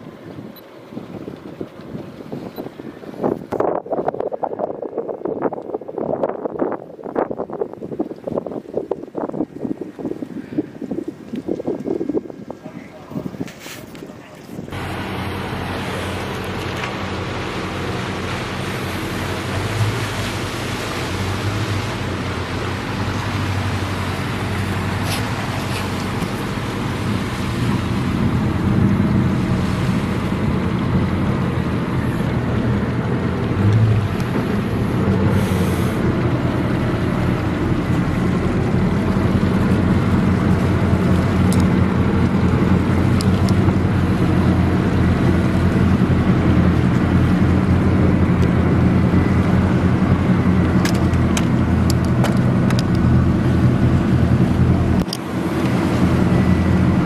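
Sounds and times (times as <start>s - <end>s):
low engine drone: 13.9s - 57.0s.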